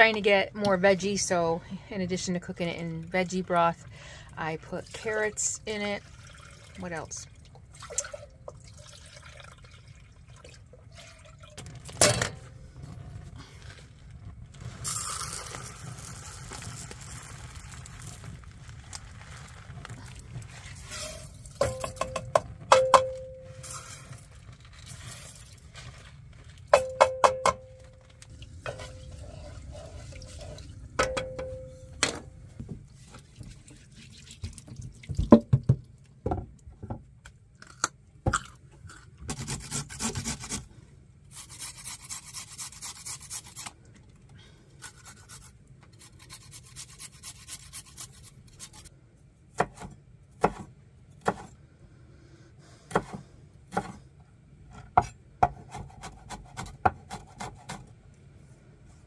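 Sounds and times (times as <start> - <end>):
rice poured into a pot: 13.5 - 21.6, 23.6 - 26.7.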